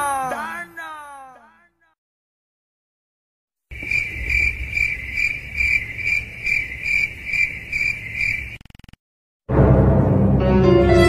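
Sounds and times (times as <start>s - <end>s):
crickets chirping: 3.7s - 8.9s.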